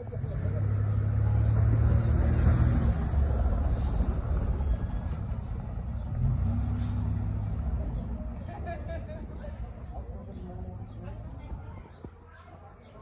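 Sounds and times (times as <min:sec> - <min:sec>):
car engine driving by: 0:00.0 - 0:08.4.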